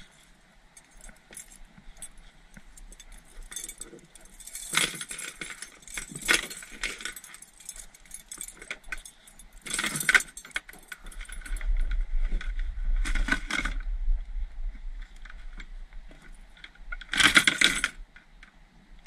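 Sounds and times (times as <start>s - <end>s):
metal clips jangling: 0.8s - 11.7s
low rumble: 11.1s - 16.1s.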